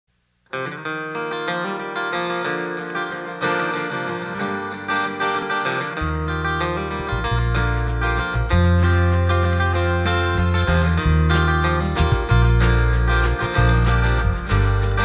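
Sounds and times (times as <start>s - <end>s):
acoustic guitar playing: 0.4s - 15.0s
electric bass low notes: 6.0s - 15.0s.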